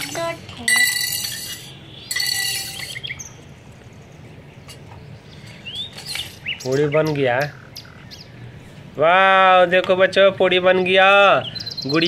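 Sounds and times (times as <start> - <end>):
buzzy bird calls: 5.0 - 8.5.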